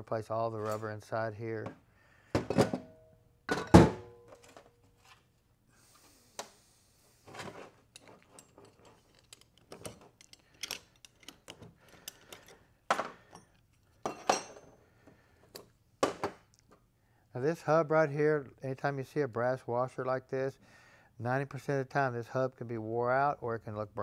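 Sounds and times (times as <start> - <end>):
metal parts clinking on workbench: 7.9 - 14.7.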